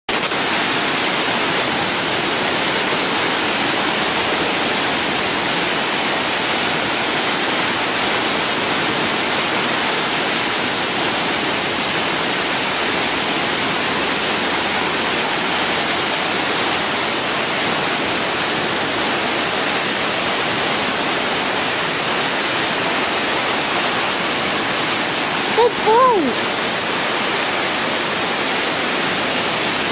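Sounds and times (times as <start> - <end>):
river rapids rushing: 0.1 - 29.9.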